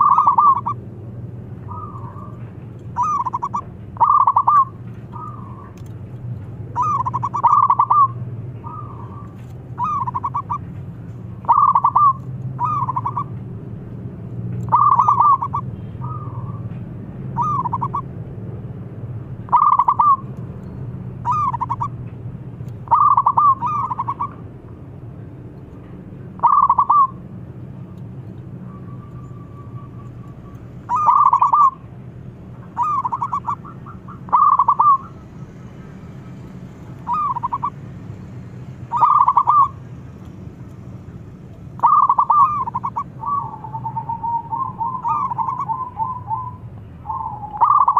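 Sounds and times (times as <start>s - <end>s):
dove cooing: 0.0s - 0.8s, 1.6s - 5.8s, 6.7s - 10.7s, 11.4s - 13.3s, 14.7s - 16.6s, 17.4s - 18.1s, 19.5s - 20.3s, 21.2s - 22.0s, 22.8s - 24.4s, 26.4s - 27.2s, 29.2s - 31.9s, 32.6s - 35.3s, 37.0s - 37.8s, 38.9s - 39.8s, 41.8s - 47.9s.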